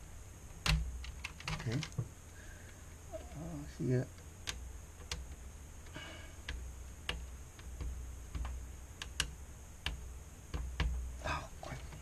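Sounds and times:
low steady hum: 0:00.0 - 0:12.0
small clicks and taps: 0:04.1 - 0:11.0.

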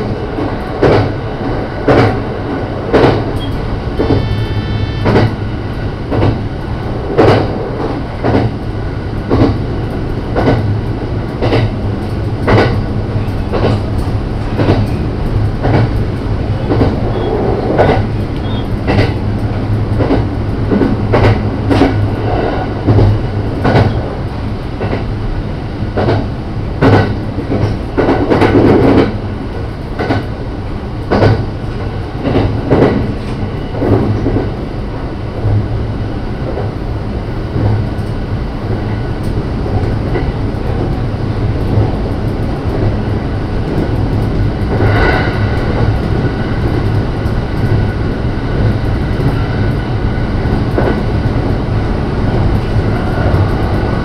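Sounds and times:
train rumble: 0:00.0 - 0:54.0
train running hum: 0:00.0 - 0:54.0.

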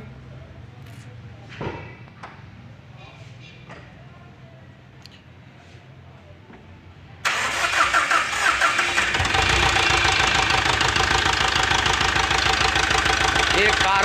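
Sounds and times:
diesel engine starting and idling: 0:07.2 - 0:14.0.

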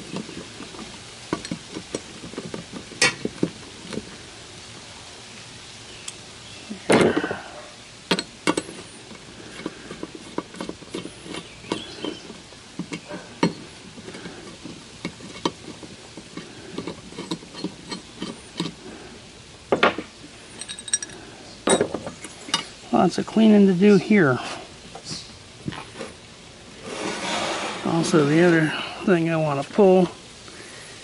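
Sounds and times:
metal tools clicking and clinking: 0:08.1 - 0:18.8, 0:20.6 - 0:22.8.

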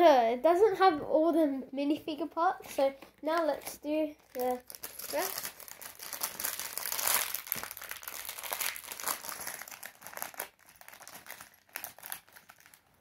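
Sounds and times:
plastic bag crinkling: 0:03.2 - 0:13.0.

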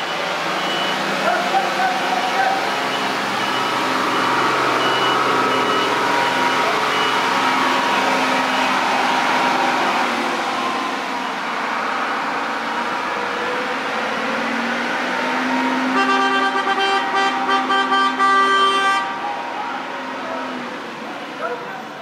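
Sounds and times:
heavy vehicle running: 0:00.0 - 0:22.0
high beeps: 0:02.2 - 0:07.3.

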